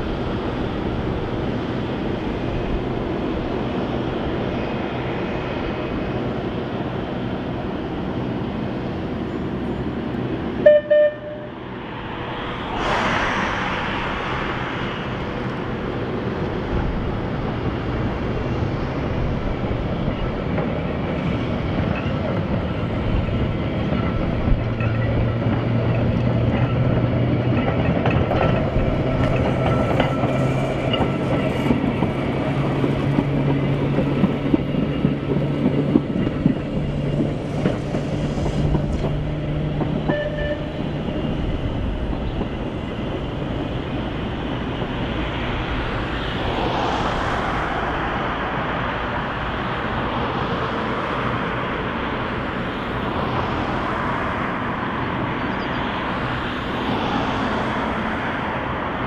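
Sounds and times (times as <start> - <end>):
electric tram humming: 0.0 - 59.0
road traffic tyre noise: 0.0 - 59.0
wheels clicking over rail joints: 20.1 - 45.1.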